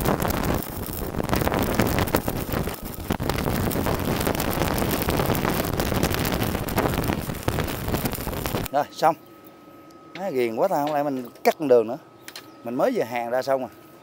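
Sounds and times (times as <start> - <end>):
welding arc crackling: 0.0 - 8.8.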